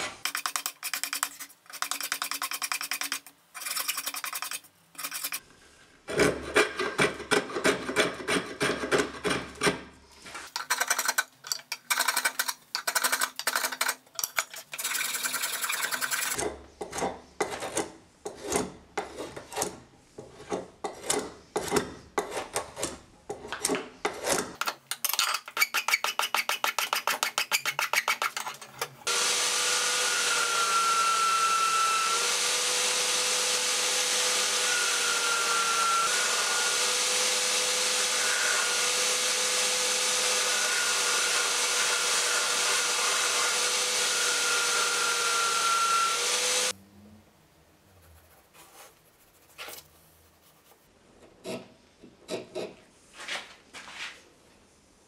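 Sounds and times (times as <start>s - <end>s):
belt sander running: 29.1s - 46.7s.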